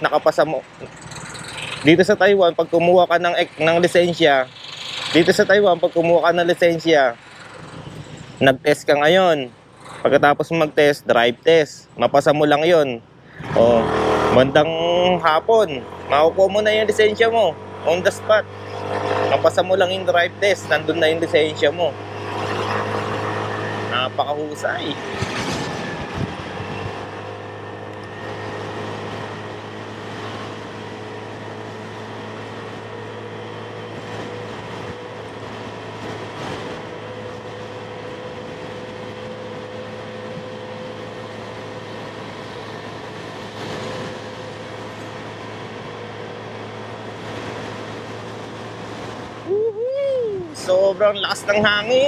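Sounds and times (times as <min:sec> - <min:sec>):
motorcycle engine hum: 0:00.0 - 0:12.1, 0:13.0 - 0:52.0
wind rushing over microphone: 0:22.0 - 0:52.0.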